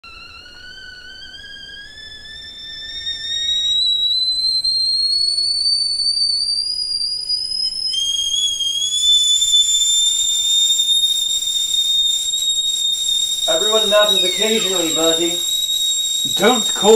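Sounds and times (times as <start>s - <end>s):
kettle whistling: 0.0s - 16.9s
steam hissing: 8.2s - 16.9s.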